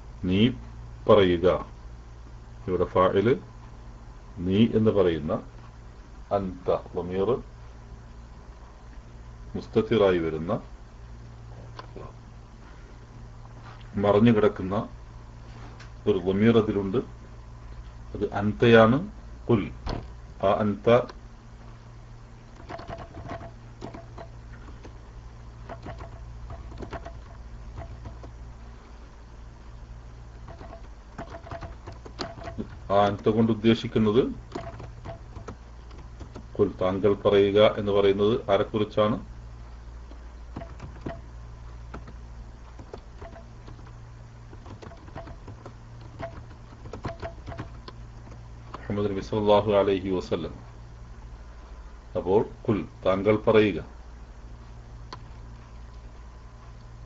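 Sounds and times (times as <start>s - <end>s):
low electrical hum: 0.0s - 57.0s
keyboard typing clicks: 22.5s - 25.0s, 25.6s - 28.4s, 30.4s - 33.3s, 34.5s - 36.6s, 40.1s - 41.3s, 41.9s - 48.8s.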